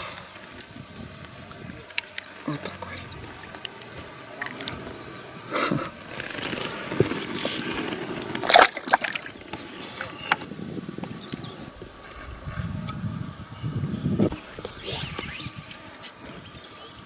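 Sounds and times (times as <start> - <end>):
water sloshing: 6.2 - 9.4
fish splashing into water: 8.4 - 9.4.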